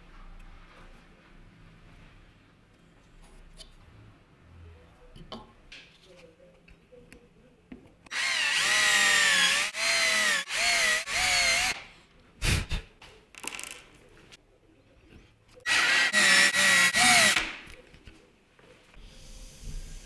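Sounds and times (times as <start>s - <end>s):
cordless drill motor whining: 8.1s - 11.8s, 15.7s - 17.4s.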